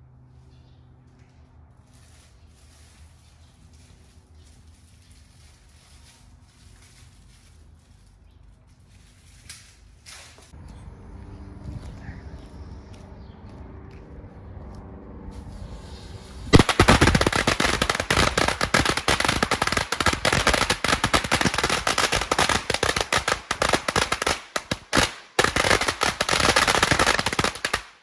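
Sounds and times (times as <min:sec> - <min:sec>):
firecrackers crackling: 0:15.4 - 0:28.0.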